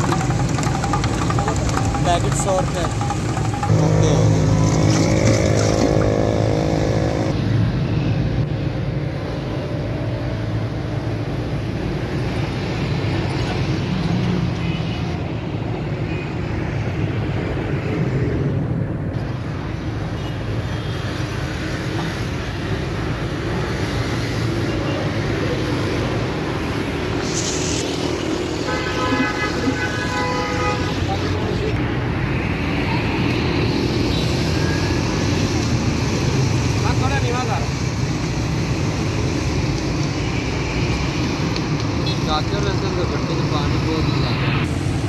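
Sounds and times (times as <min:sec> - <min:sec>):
motorcycles passing: 0:00.0 - 0:07.6, 0:20.8 - 0:45.0
cars passing: 0:00.0 - 0:45.0.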